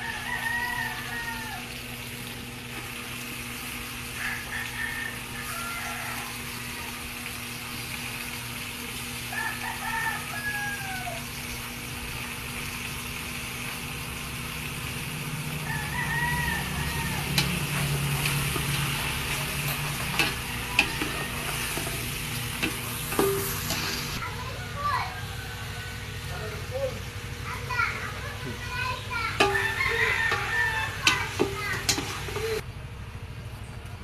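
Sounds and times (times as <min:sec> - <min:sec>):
rooster crowing: 0:00.0 - 0:02.0, 0:04.0 - 0:07.4, 0:09.2 - 0:11.4, 0:15.2 - 0:26.6, 0:28.8 - 0:32.6
chicken sizzling in a pot: 0:00.0 - 0:32.6.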